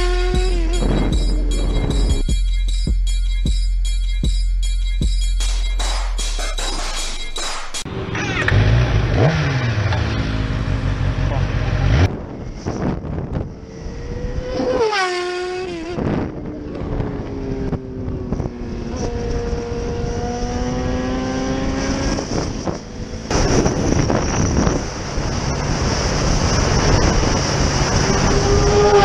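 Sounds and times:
motorcycle engine accelerating: 0.0s - 2.3s, 7.8s - 29.0s
another motorcycle engine revving: 7.9s - 29.0s
wind rushing over microphone: 12.0s - 29.0s.

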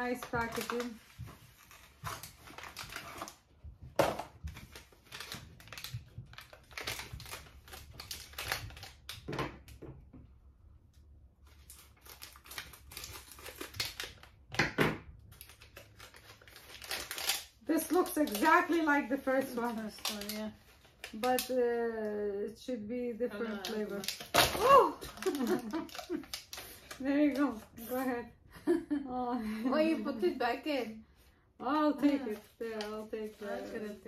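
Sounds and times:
cardboard and plastic crinkling: 0.0s - 9.4s, 11.4s - 14.5s, 15.3s - 21.9s, 23.3s - 28.2s, 31.7s - 34.0s.

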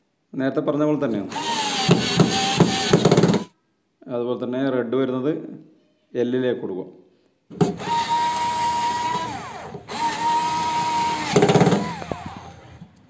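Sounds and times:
screwdriver motor whining: 1.3s - 3.5s, 7.8s - 12.8s.

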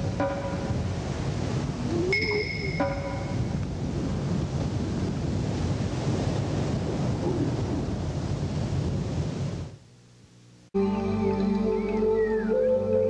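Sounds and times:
wind buffeting microphone: 0.0s - 9.8s.

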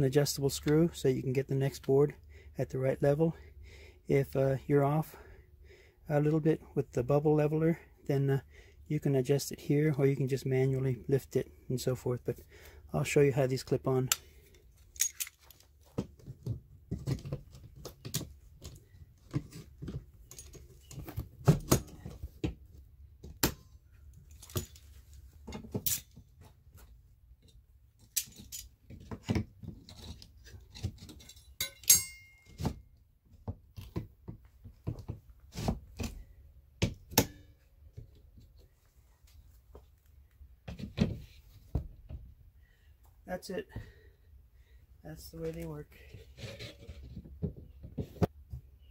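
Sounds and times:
metal tools clicking and clattering: 14.8s - 15.6s, 20.2s - 21.2s, 24.3s - 26.3s, 28.0s - 28.8s, 29.9s - 32.7s.

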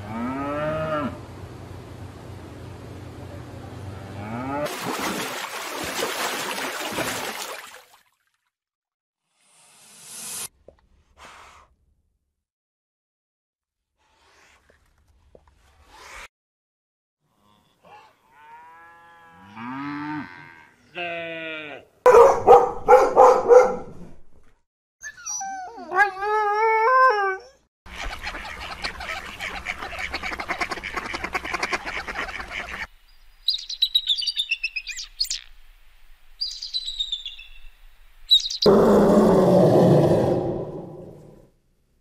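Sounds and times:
dog barking: 22.1s - 24.0s
dog whining: 25.0s - 27.7s
dog howling: 25.5s - 27.6s
short high bird calls: 38.3s - 38.7s.

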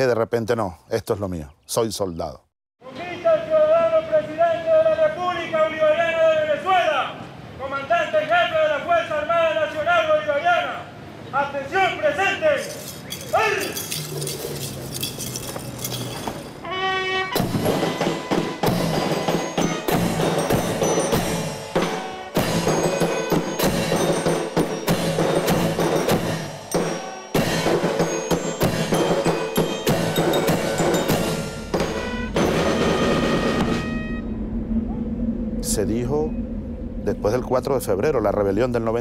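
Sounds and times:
military band playing: 16.6s - 34.4s
crashing cymbals: 17.4s - 34.2s
bugle: 31.8s - 34.4s.

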